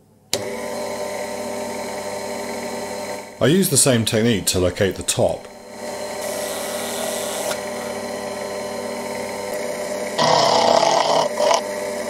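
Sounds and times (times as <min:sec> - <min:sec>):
mill spindle running: 0:00.3 - 0:12.0
harsh metal cutting noise: 0:04.6 - 0:12.0.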